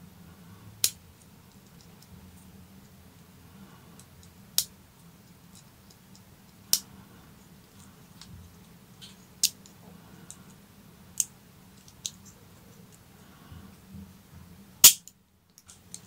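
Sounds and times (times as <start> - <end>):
sharp metal gun clicks: 14.8 - 15.1.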